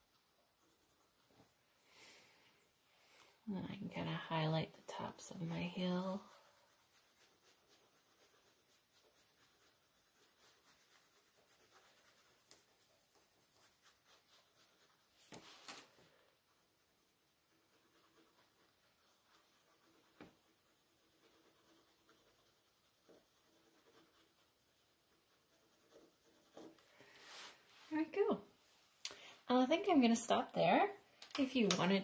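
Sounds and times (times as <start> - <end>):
pencil scratching on paper: 0.0 - 1.3, 3.8 - 27.5.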